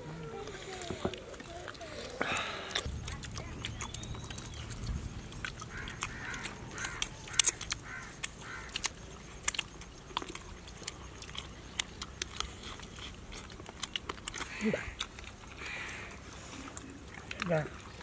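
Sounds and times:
wet chewing and lip-smacking: 0.1 - 18.0
short chirping calls: 3.6 - 8.8.

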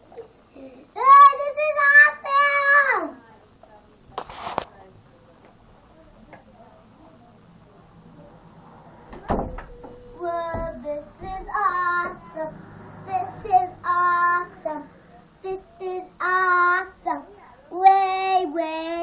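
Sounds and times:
child singing: 1.0 - 3.2, 9.6 - 19.0
dull thumps: 9.1 - 12.2.

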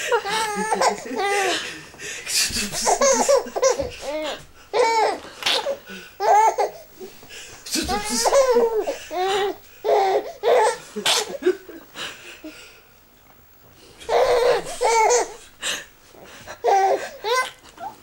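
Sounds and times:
baby girl giggling: 0.0 - 1.6, 2.5 - 11.4, 14.1 - 15.5, 16.6 - 18.0.

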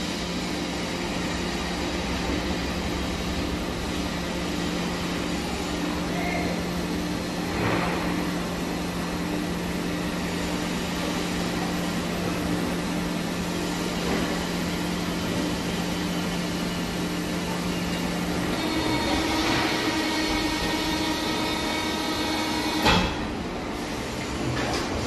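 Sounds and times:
hydraulic press humming: 0.0 - 25.0
workshop noise: 17.0 - 25.0.

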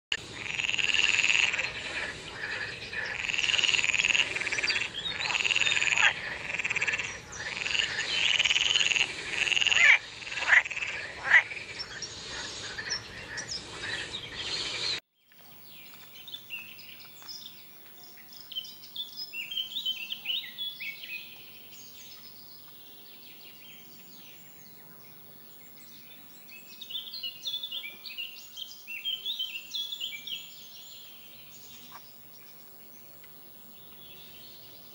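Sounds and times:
frogs croaking in chorus: 0.2 - 14.7, 26.7 - 33.4.

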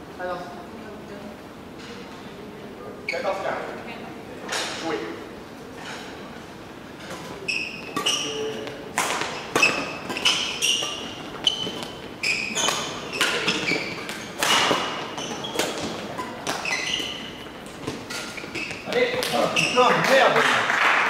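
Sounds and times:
shoes squeaking on court floor: 3.1 - 3.6, 6.9 - 20.4
rackets striking shuttlecock: 7.8 - 19.5.

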